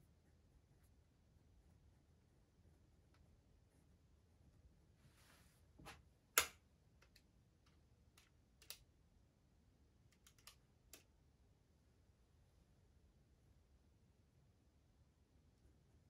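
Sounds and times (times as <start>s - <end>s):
light clicks and taps: 6.4s - 8.8s.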